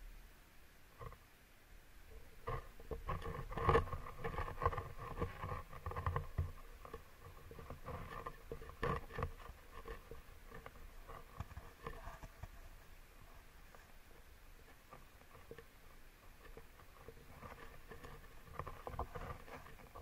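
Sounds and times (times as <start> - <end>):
camera pole knocking and scraping: 14.7 - 20.0.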